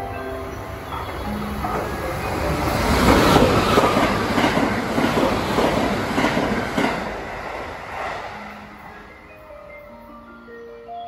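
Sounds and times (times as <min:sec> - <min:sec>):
train wheels clattering over rails: 0:00.9 - 0:08.4.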